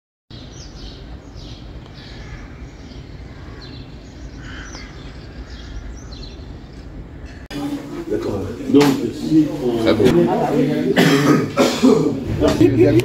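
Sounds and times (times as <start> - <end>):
birds chirping: 0.3 - 10.2.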